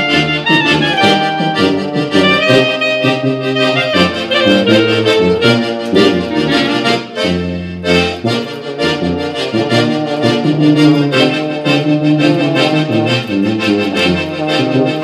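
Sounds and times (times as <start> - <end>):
brass and accordion ensemble hymn: 0.0 - 15.0.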